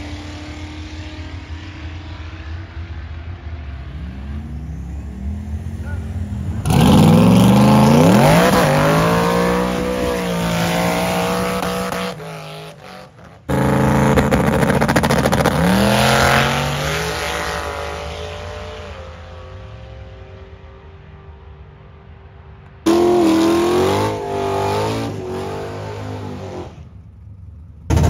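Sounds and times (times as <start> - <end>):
truck engine revving: 3.9 - 19.0, 22.9 - 26.9.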